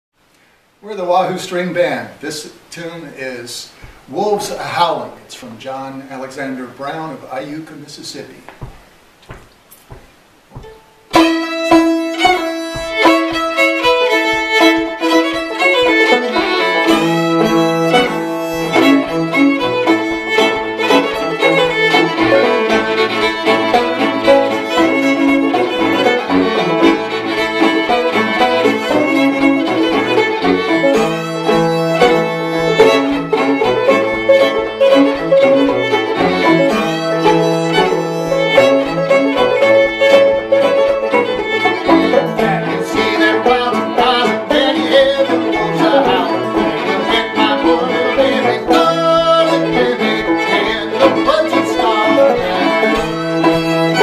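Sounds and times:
fiddle: 0:04.2 - 0:54.0
bowed cello: 0:10.6 - 0:54.0
banjo: 0:11.1 - 0:54.0.

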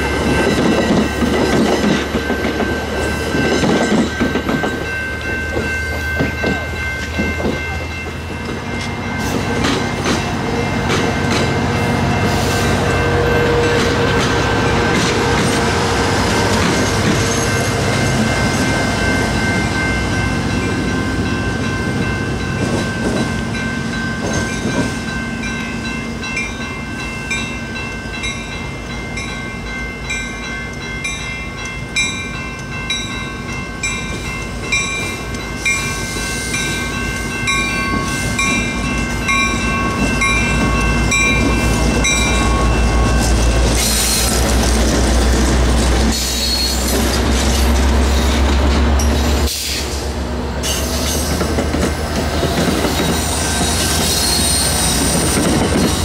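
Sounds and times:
train wheels clattering over rail joints: 0:00.0 - 0:18.6, 0:50.6 - 0:56.0
level-crossing signal bells ringing: 0:00.0 - 0:48.4.

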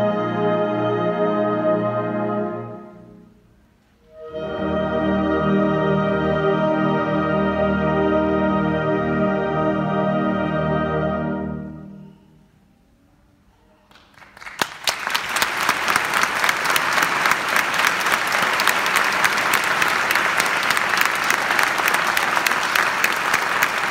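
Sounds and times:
wind band holding chord: 0:04.1 - 0:12.1
audience applause: 0:13.9 - 0:23.9.

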